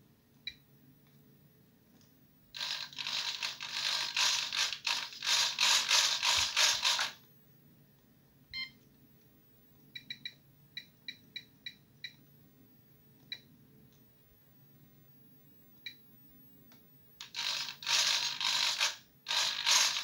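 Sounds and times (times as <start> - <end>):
short key-press beeps: 8.6 - 8.8, 10.0 - 12.2.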